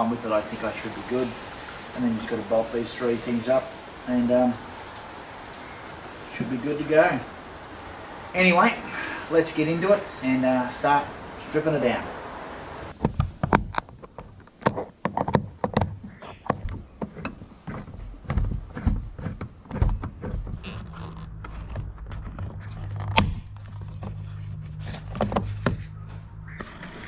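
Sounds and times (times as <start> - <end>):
steady low hum: 21.3 - 27.0.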